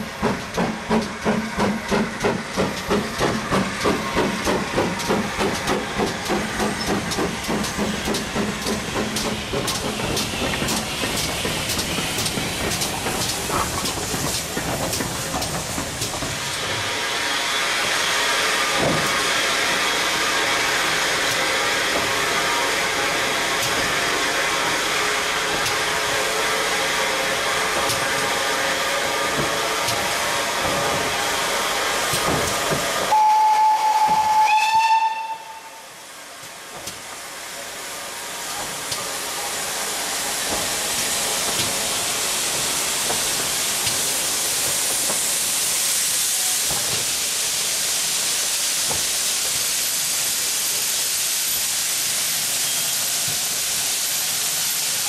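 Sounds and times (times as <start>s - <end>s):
steam locomotive hissing: 0.0s - 55.0s
steam whistle blast: 33.1s - 36.0s.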